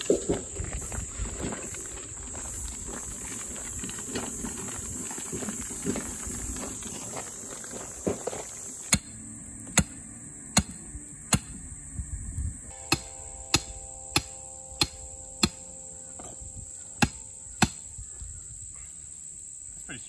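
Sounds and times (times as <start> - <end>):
insects buzzing: 0.0 - 20.0
sledgehammer striking metal stake: 8.9 - 11.6, 12.7 - 17.9.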